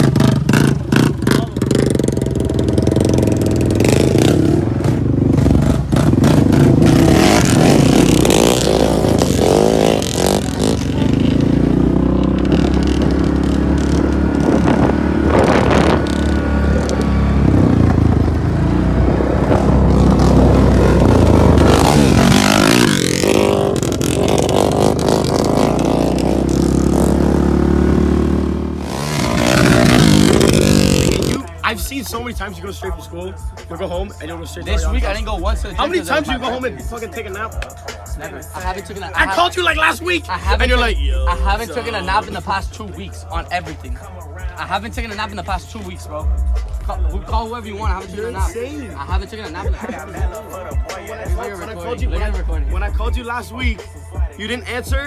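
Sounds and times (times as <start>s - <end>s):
quad engine revving: 0.0s - 31.6s.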